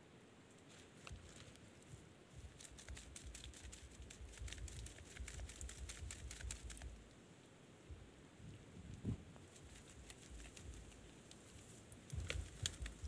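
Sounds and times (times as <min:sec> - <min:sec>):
crabs clicking against wire mesh: 0:02.5 - 0:07.0, 0:12.0 - 0:13.0.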